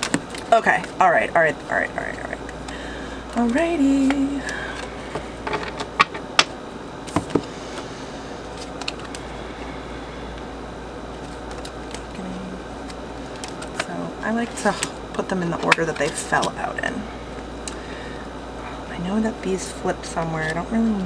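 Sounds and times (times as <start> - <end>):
cards shuffling and tapping: 0.0 - 1.0, 3.4 - 7.9, 8.5 - 9.2, 11.1 - 12.2, 12.8 - 16.8.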